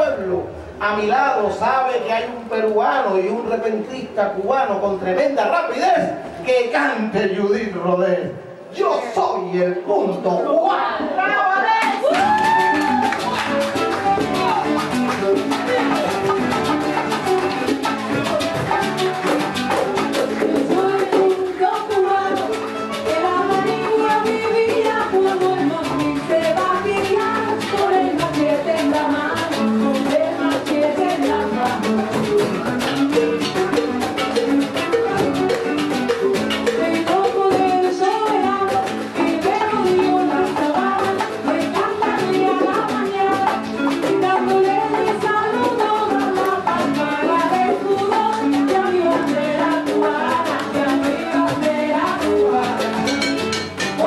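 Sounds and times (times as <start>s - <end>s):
cajon drum: 0.0s - 54.0s
lute playing: 10.8s - 54.0s
bongos: 10.9s - 54.0s
woman singing: 11.0s - 16.9s, 20.1s - 32.4s, 34.8s - 35.9s, 36.6s - 54.0s.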